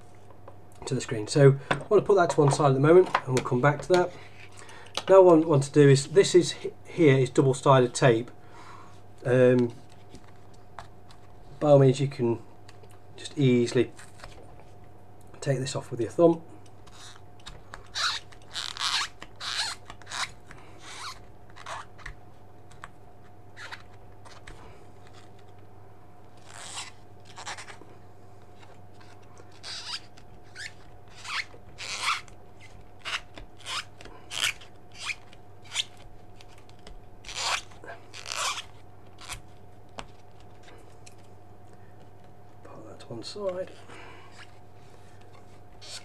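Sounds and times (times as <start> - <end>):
thumb rubbing tape off plastic: 16.8 - 25.6, 26.3 - 27.8, 28.5 - 41.3, 44.3 - 46.0.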